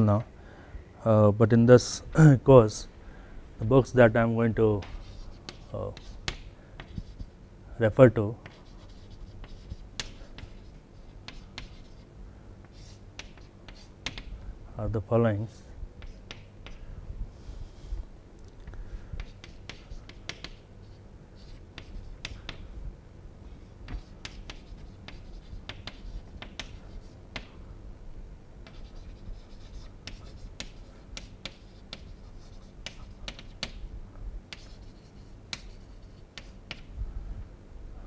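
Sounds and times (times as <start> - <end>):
chalk scratching on chalkboard: 4.8 - 7.3, 8.4 - 12.1, 12.7 - 14.3, 16.0 - 16.8, 19.2 - 22.6, 23.6 - 27.5, 28.6 - 33.8, 34.5 - 36.9
chalk tapping on chalkboard: 4.8 - 7.3, 8.4 - 12.0, 12.7 - 14.3, 16.0 - 16.8, 19.2 - 20.6, 21.4 - 22.6, 23.8 - 27.6, 28.6 - 33.8, 34.5 - 36.9.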